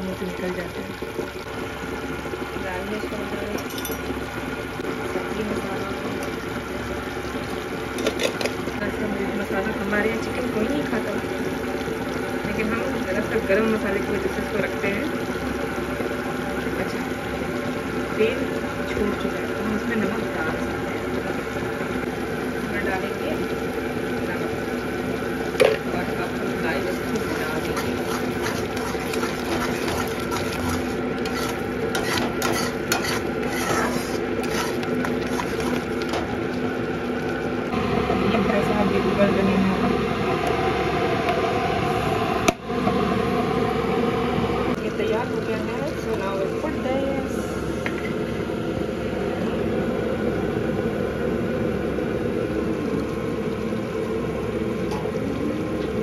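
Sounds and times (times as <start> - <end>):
oil sizzling in a pan: 0.0 - 56.0
spoon scraping a pan: 27.1 - 36.3.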